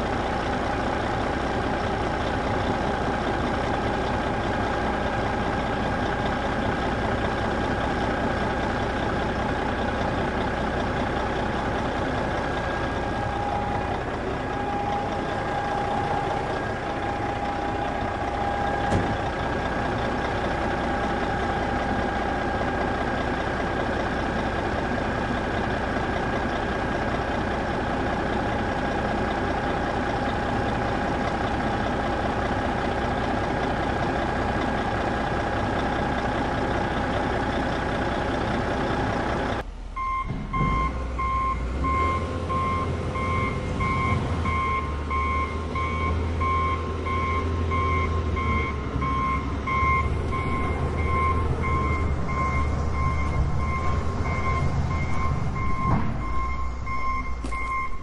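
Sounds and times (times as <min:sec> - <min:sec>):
heavy vehicle engine running: 0:00.0 - 0:58.0
reversing alarm beeping: 0:12.6 - 0:19.4, 0:39.9 - 0:58.0.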